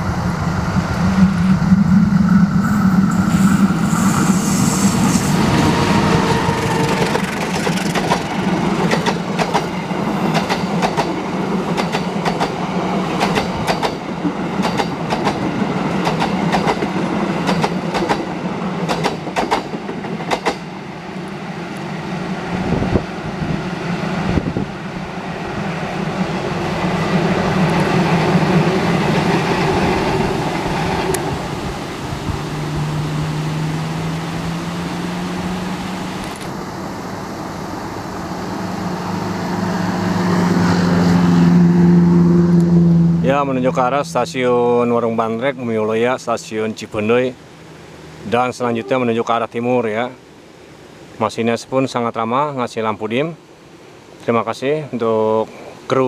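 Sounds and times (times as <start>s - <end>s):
train rumbling: 0.0s - 44.7s
train wheels clacking over rail joints: 6.2s - 12.6s, 14.6s - 15.4s, 16.0s - 20.7s.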